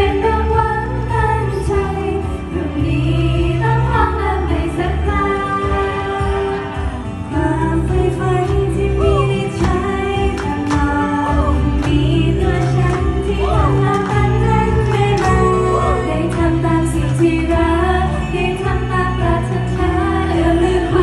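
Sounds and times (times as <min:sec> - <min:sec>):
women singing pop song: 0:00.0 - 0:21.0
backing track with bass line: 0:07.4 - 0:21.0.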